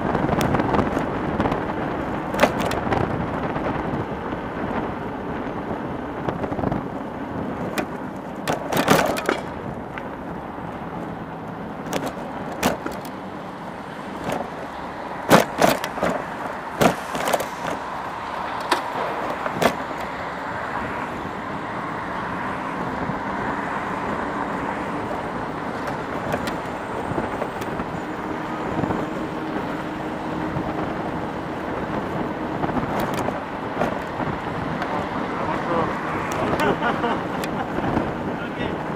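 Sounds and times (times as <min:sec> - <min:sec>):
road and traffic noise: 0:00.0 - 0:38.9
sharp knocks and rattles: 0:07.6 - 0:09.6.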